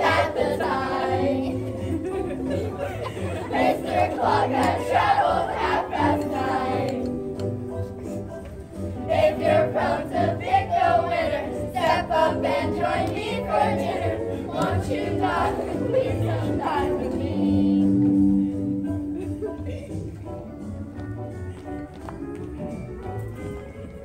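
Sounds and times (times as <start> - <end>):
group singing in chorus: 0.0 - 2.2, 2.8 - 7.3, 9.0 - 18.4
musical accompaniment: 0.0 - 24.0.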